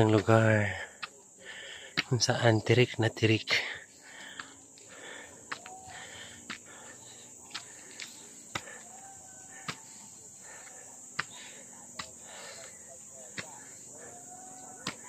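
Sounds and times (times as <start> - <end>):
insects droning: 0.0 - 15.0
footsteps on concrete stairs: 4.1 - 15.0.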